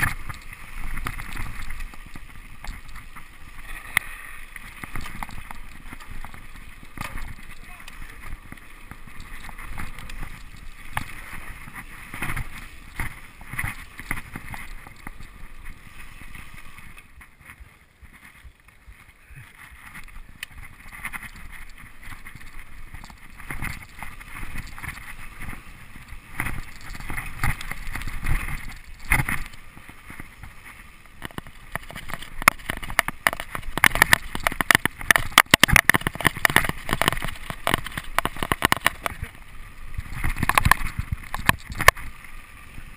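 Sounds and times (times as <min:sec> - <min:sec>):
bike rattling: 0:00.0 - 0:42.9
tyres rumbling on dirt: 0:19.7 - 0:42.9
tyres clattering over loose stones: 0:31.2 - 0:39.3.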